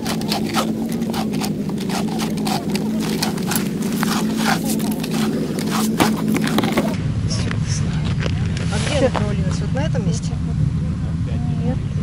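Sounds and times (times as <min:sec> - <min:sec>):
ice auger blades scraping ice: 0:00.0 - 0:07.0.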